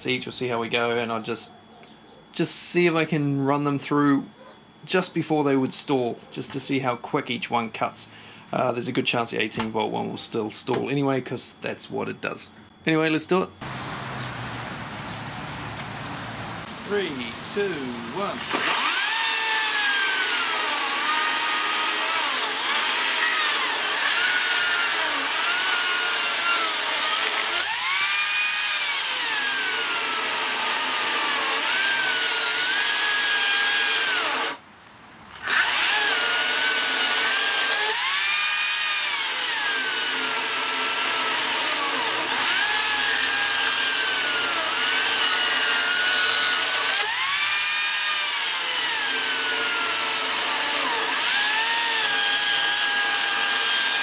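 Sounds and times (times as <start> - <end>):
electric chainsaw whine: 13.6 - 34.6, 35.3 - 54.0
chain rasping through wood: 18.5 - 34.6, 35.4 - 54.0.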